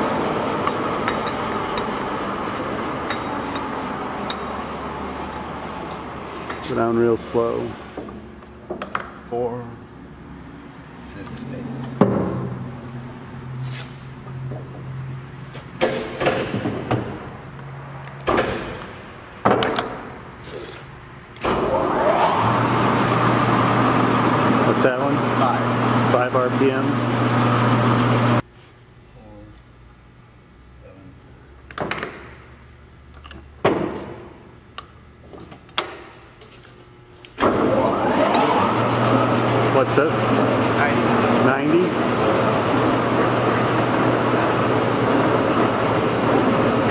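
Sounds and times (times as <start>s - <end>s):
metal clanks on lathe: 0.6s - 2.0s, 3.0s - 4.6s
lathe humming: 37.8s - 46.9s.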